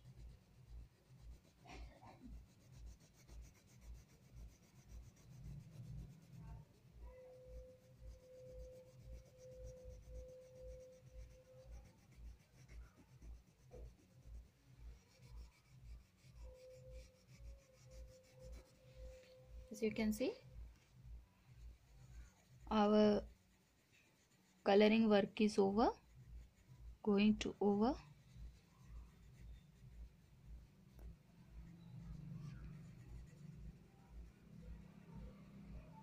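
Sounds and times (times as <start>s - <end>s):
crayon rubbing on paper: 0.0s - 20.2s, 21.5s - 34.3s.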